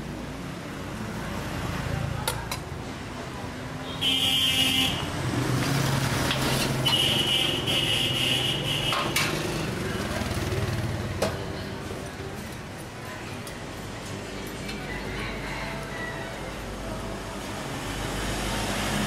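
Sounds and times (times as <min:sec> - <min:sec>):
street traffic drone: 0:00.0 - 0:19.0
high-pitched vehicle horn beeps: 0:06.8 - 0:09.2.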